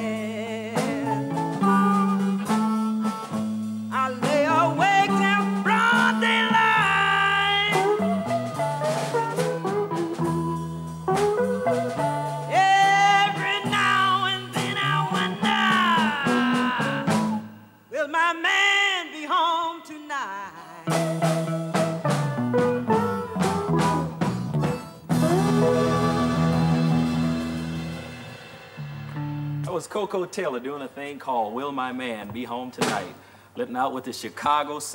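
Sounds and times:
woman singing blues: 0.0 - 3.2, 3.9 - 8.4, 12.5 - 21.2, 25.2 - 27.5
blues band playing: 0.0 - 17.7, 20.8 - 33.2.

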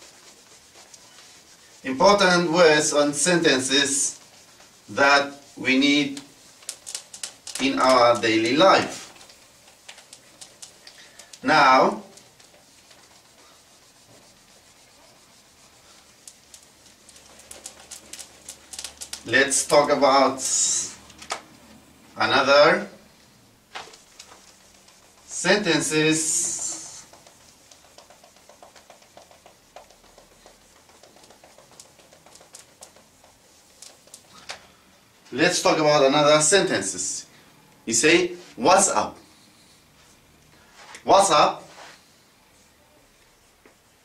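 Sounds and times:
whiteboard eraser rubbing: 0.0 - 21.1, 23.8 - 34.4.

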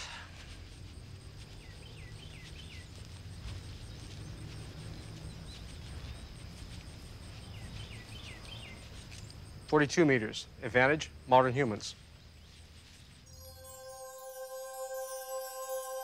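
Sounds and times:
insects chirring: 0.0 - 16.0
small bird chirping: 7.3 - 9.4.

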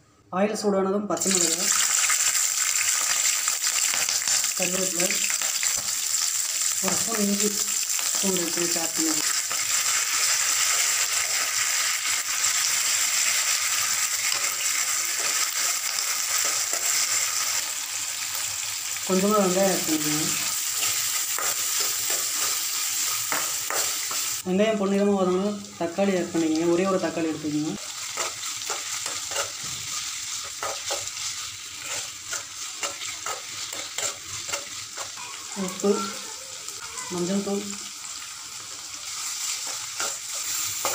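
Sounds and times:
spices sizzling in hot oil: 1.2 - 40.9
metal spoon scraping a pan: 9.2 - 17.5, 20.6 - 24.4, 27.8 - 35.3, 39.2 - 40.9
spatula scraping a pan: 27.9 - 35.3, 39.1 - 40.9.

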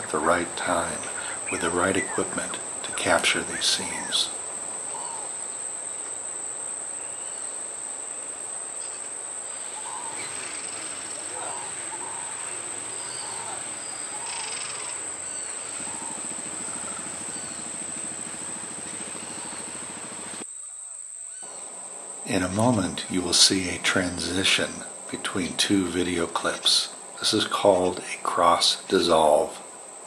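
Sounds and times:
faint bird calls: 0.0 - 21.7
high-pitched insect drone: 0.0 - 30.0.

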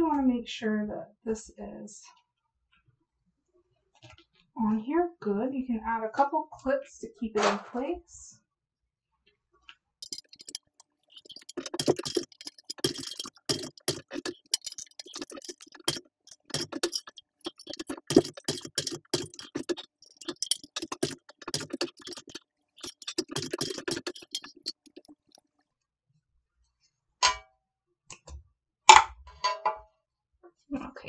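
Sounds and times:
sewing machine stitching leather: 10.0 - 25.4.

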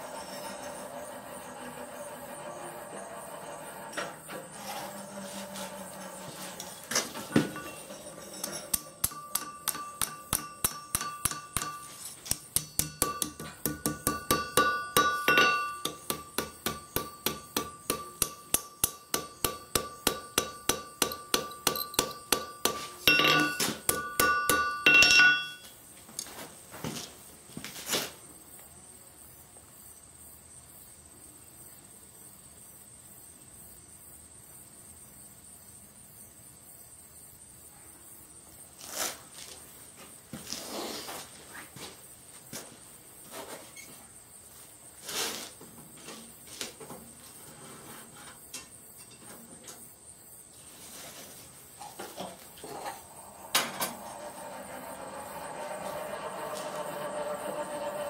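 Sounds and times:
hammer striking steel on anvil: 7.4 - 25.7.

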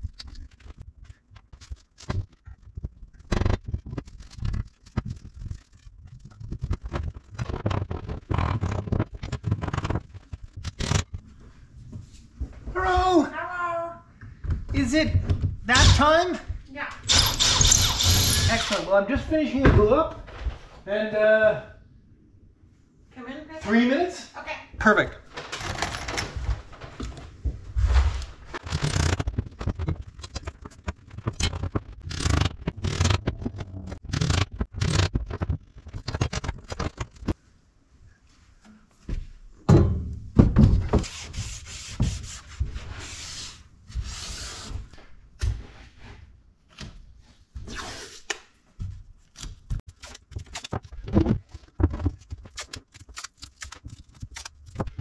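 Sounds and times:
tools and wood handled on workbench: 48.3 - 55.0.

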